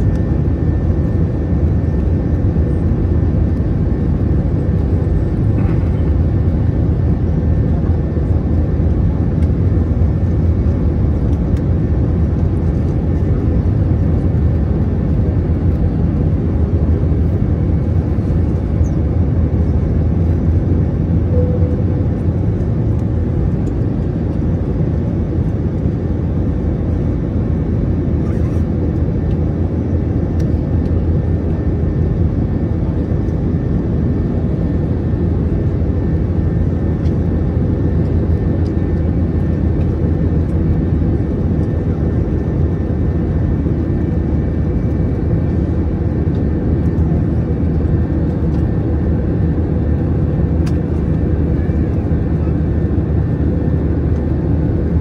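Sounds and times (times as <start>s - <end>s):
faint steady hum: 0.0s - 28.6s
jet engine roar in cabin: 0.0s - 55.0s.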